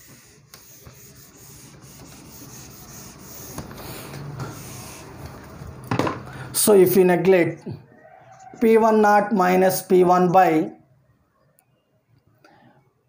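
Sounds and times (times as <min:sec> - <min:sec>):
pen scratching on paper: 0:00.0 - 0:05.3.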